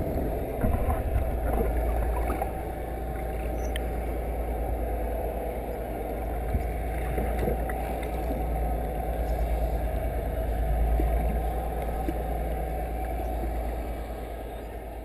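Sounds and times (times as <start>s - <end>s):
water rushing past microphone: 0.0s - 5.2s
underwater boat engine rumble: 0.0s - 15.0s.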